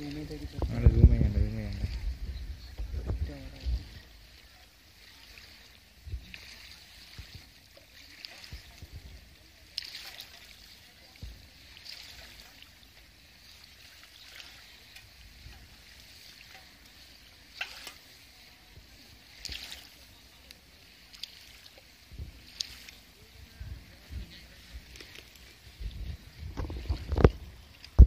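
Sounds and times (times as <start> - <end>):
small waves lapping and splashing: 0.0 - 28.0
wind rumble on microphone: 0.3 - 4.0, 25.8 - 28.0.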